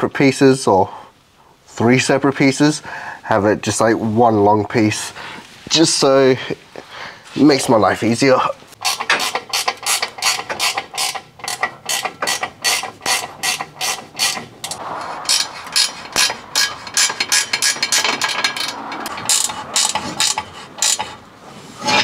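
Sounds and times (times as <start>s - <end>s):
ratchet wrench clicking: 8.8s - 21.2s.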